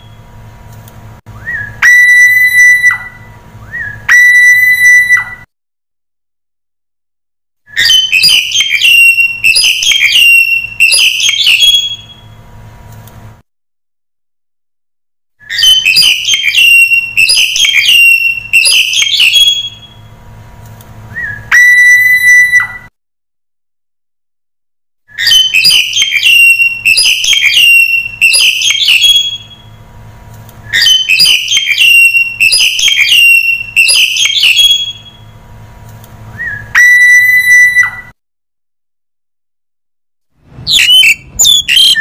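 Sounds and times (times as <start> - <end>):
starling calling: 1.5 - 5.5, 7.7 - 12.3, 15.5 - 20.0, 21.2 - 22.9, 25.2 - 29.7, 30.7 - 35.3, 36.4 - 38.1, 40.7 - 42.0.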